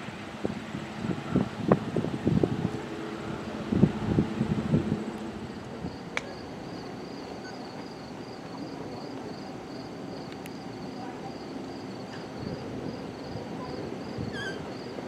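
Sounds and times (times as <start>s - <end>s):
wind buffeting microphone: 0.0s - 6.8s, 12.0s - 15.0s.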